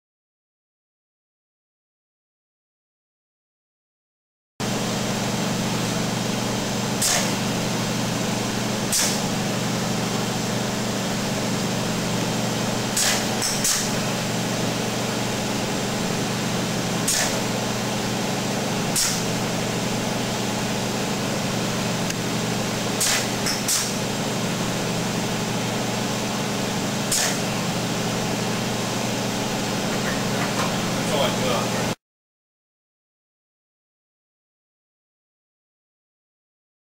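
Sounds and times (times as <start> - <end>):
steady mechanical hum: 4.6 - 32.0.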